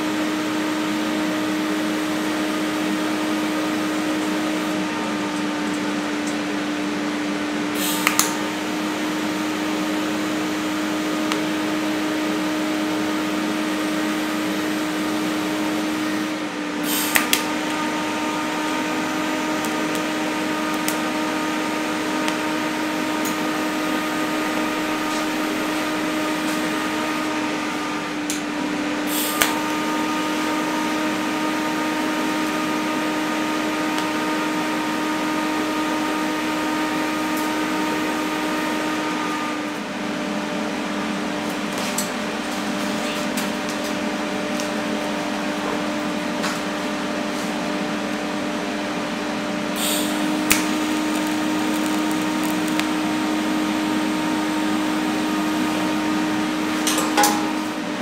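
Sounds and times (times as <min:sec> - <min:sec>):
welding arc hum and hiss: 0:00.0 - 0:58.0
welding arc crackle: 0:07.8 - 0:28.5, 0:29.1 - 0:39.0, 0:49.8 - 0:57.8.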